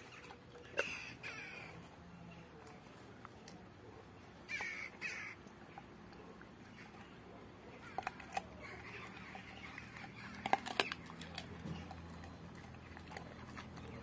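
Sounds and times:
dog gnawing bone: 0.0s - 14.0s
bird calling: 4.4s - 5.9s.

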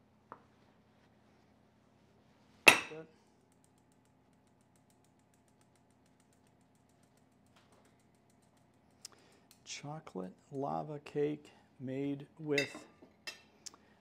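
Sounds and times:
ceramic ramekin clinking on plate: 12.6s - 13.5s.

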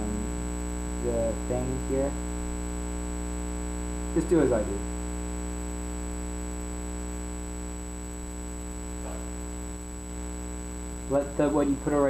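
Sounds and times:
electrical mains hum: 0.0s - 12.0s
thin high whine: 0.0s - 12.0s.

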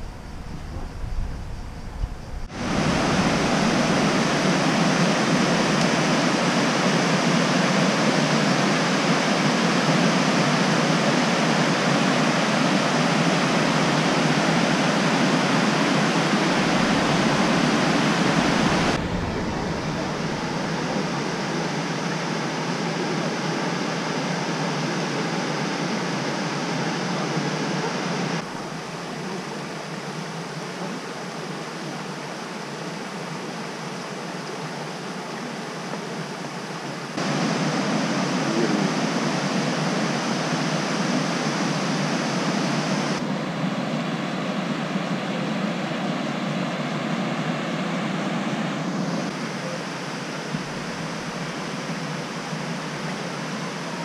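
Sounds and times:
river water rushing: 0.0s - 22.6s, 32.4s - 43.2s, 47.8s - 54.0s.

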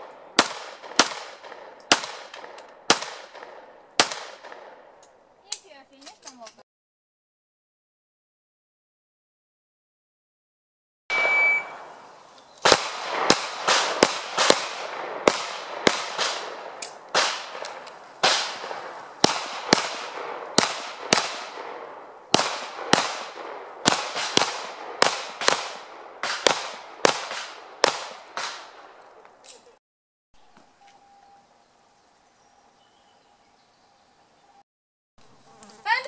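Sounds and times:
pistol shots: 0.0s - 5.0s, 12.6s - 29.0s.

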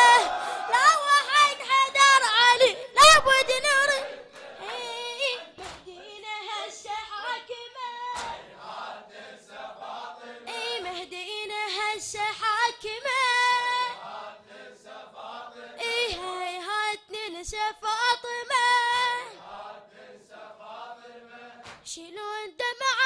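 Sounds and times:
chest-beating slaps: 5.6s - 5.9s, 8.2s - 8.6s, 21.6s - 21.9s.

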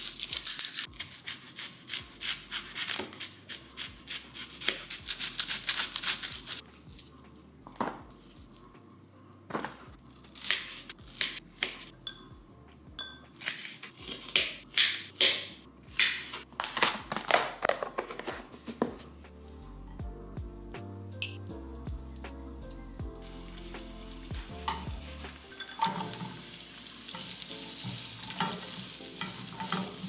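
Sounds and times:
knife slicing onion on board: 1.0s - 6.6s, 10.4s - 11.9s, 13.4s - 16.4s.

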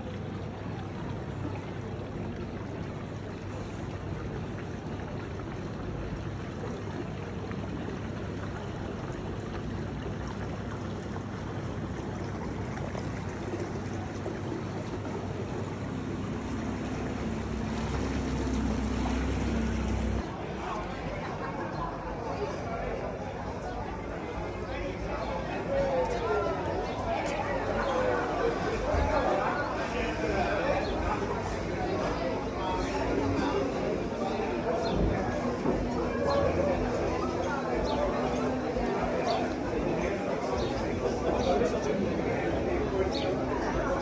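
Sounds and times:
wind and water hiss: 0.0s - 20.4s
motorboat engine running: 6.6s - 20.2s.

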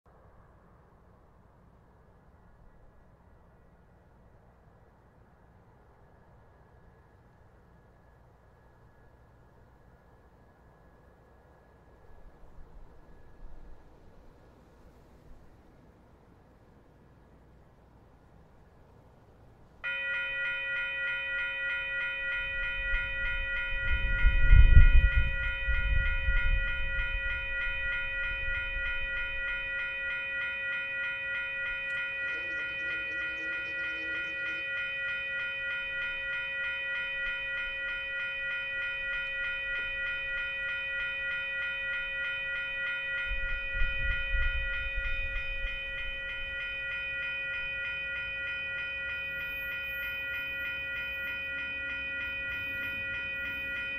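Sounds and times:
faint distant train horn: 19.8s - 53.9s
railway crossing bell ringing: 19.8s - 53.9s.

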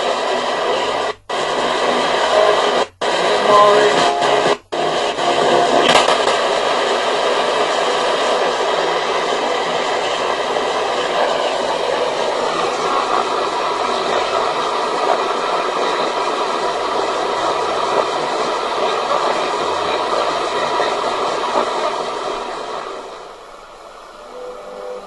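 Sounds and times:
radio static hiss: 0.0s - 25.0s.

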